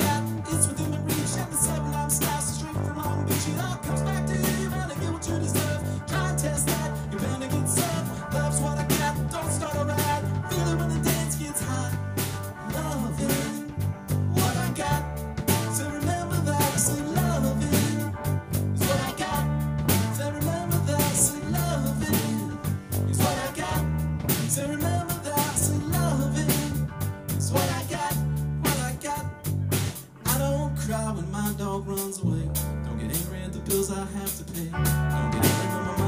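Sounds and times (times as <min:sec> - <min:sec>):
electric bass line: 0:00.0 - 0:36.0
electric guitar: 0:00.0 - 0:36.0
drum kit hits: 0:07.7 - 0:18.0, 0:18.6 - 0:26.8.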